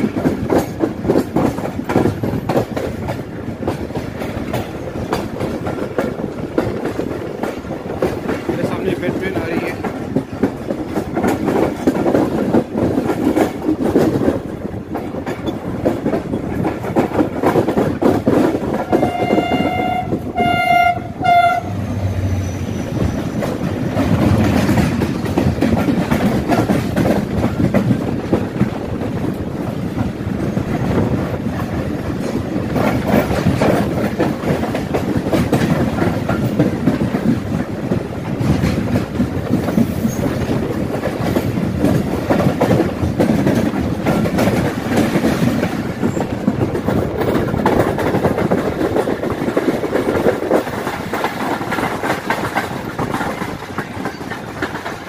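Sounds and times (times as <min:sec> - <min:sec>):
freight train wheels rumbling: 0:00.0 - 0:55.0
diesel train horn blasts: 0:18.9 - 0:22.4.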